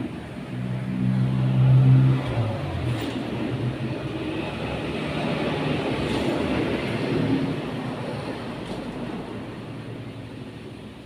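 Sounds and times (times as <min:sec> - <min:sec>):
motor vehicle passing: 0:00.0 - 0:07.6.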